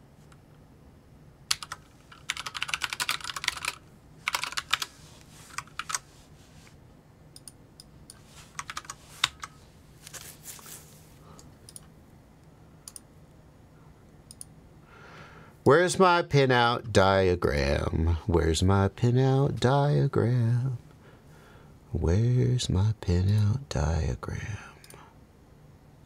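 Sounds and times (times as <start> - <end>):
typing on computer keyboard: 1.5 - 4.9, 5.5 - 6.0, 8.6 - 9.5.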